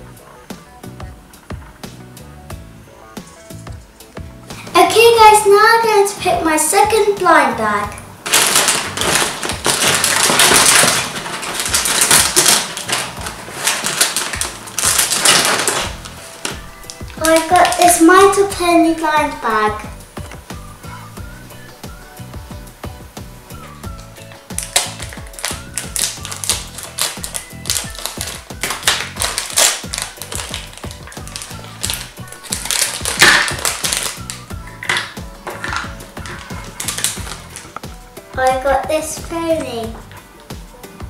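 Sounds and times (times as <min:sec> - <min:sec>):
background music: 0:00.0 - 0:41.0
plastic and foil packets crinkling: 0:08.2 - 0:19.5, 0:23.6 - 0:38.0.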